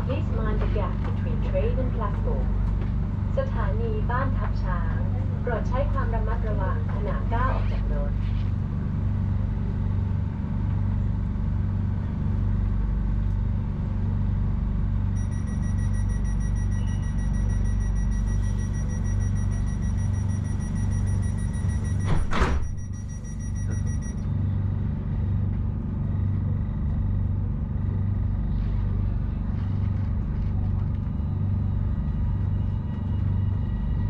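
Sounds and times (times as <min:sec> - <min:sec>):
train equipment humming: 0:00.0 - 0:34.0
electronic warning beep: 0:15.2 - 0:24.3
train doors shutting: 0:18.3 - 0:24.0.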